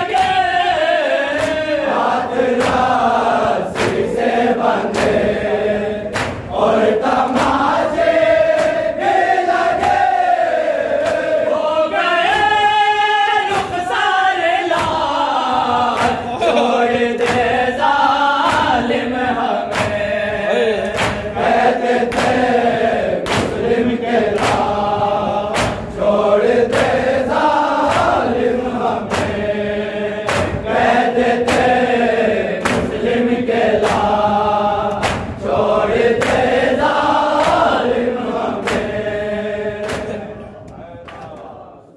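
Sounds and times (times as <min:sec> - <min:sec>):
men chanting in unison: 0:00.0 - 0:41.9
hand slaps on chest: 0:01.3 - 0:04.2, 0:04.9 - 0:05.3, 0:06.1 - 0:09.2, 0:11.0 - 0:11.3, 0:13.5 - 0:13.9, 0:14.7 - 0:15.2, 0:15.9 - 0:16.2, 0:17.1 - 0:17.6, 0:18.4 - 0:18.9, 0:19.7 - 0:20.0, 0:20.8 - 0:23.7, 0:24.3 - 0:24.8, 0:25.5 - 0:26.0, 0:27.8 - 0:28.3, 0:29.1 - 0:29.4, 0:30.2 - 0:31.8, 0:32.6 - 0:33.1, 0:33.8 - 0:34.2, 0:34.9 - 0:35.4, 0:36.2 - 0:36.6, 0:37.4 - 0:37.9, 0:38.6 - 0:39.0, 0:39.8 - 0:40.2.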